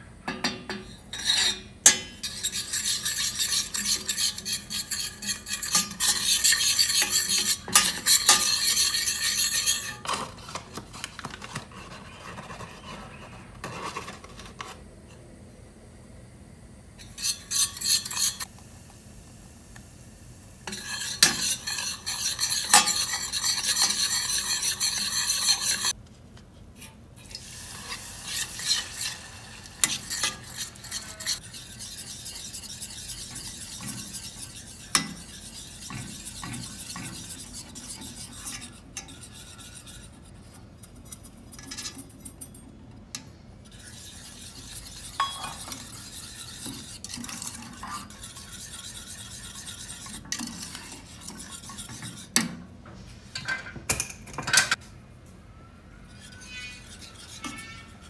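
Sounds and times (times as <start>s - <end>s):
wooden spoon scraping saucepan: 0.8s - 14.8s, 17.0s - 18.5s, 20.7s - 26.0s, 26.8s - 42.6s, 43.7s - 52.5s, 56.1s - 58.0s
metal spoon clinking on pan: 45.2s - 45.9s.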